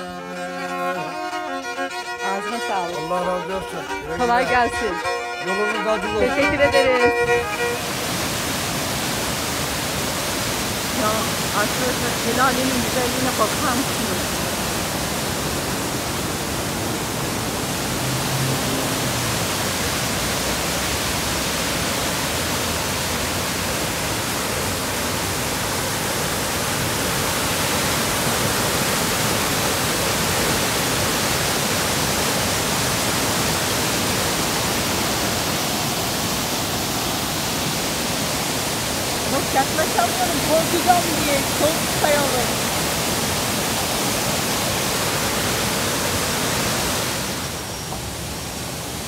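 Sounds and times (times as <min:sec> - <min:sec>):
white water rushing over boulders: 0:00.0 - 0:49.0.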